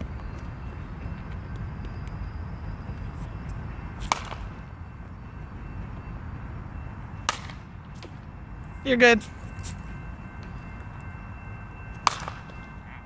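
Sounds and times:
bat hitting ball: 4.0 - 4.5, 7.3 - 7.6, 12.0 - 12.5.

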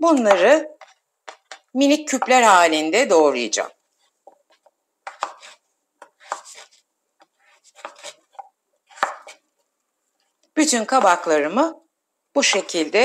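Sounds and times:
knife slicing on wooden board: 5.1 - 6.8, 7.4 - 9.4.

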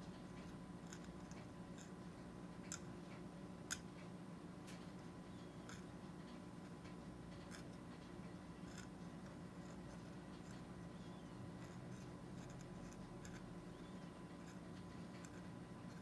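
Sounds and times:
steady low hum: 0.0 - 16.0
metal blade scraping plastic teeth: 8.6 - 9.0, 9.6 - 16.0.

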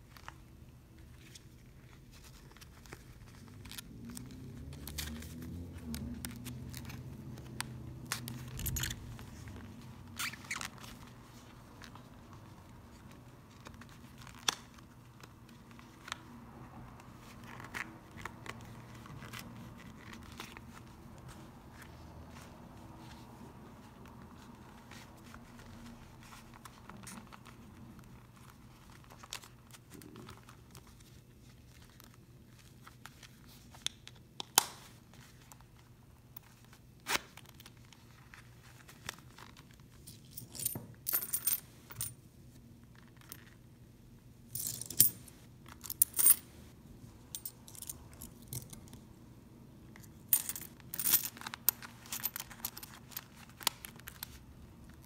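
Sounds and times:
coins clinking: 40.1 - 42.1, 44.5 - 46.5, 47.3 - 48.9, 50.2 - 53.3.

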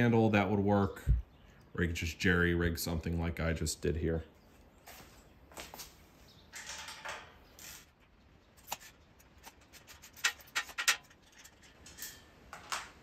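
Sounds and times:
soft rustle: 4.4 - 6.4.

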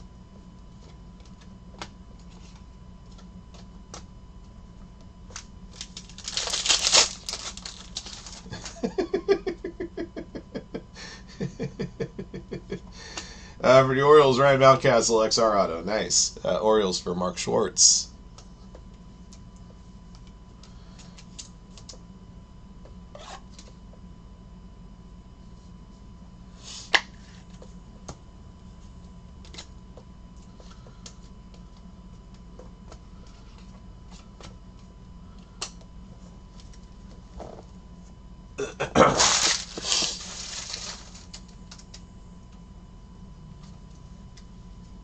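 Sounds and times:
faint electrical hum: 0.0 - 45.0
cards rustling: 5.3 - 8.8, 39.2 - 42.0.

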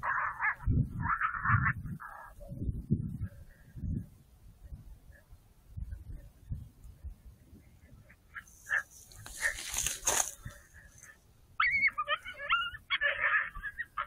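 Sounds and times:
coyote yipping and whining: 0.0 - 4.0, 8.0 - 14.0.

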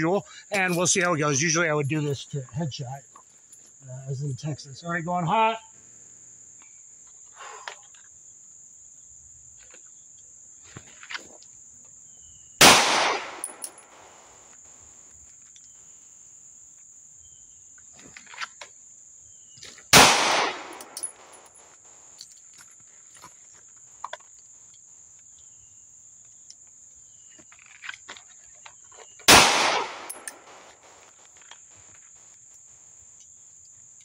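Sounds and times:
pistol shots with echo: 12.6 - 14.2, 20.0 - 21.4, 29.3 - 31.0.

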